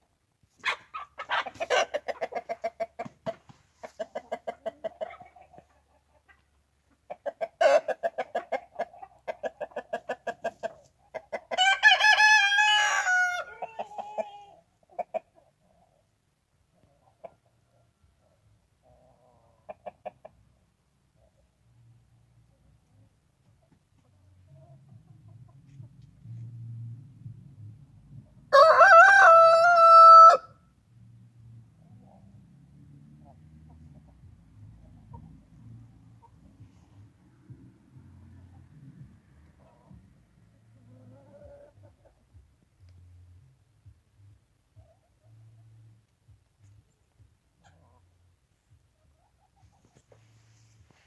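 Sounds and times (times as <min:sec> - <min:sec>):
rooster clucking: 0:00.6 - 0:15.8, 0:19.0 - 0:20.4
rooster crowing: 0:11.5 - 0:13.7, 0:28.5 - 0:30.6.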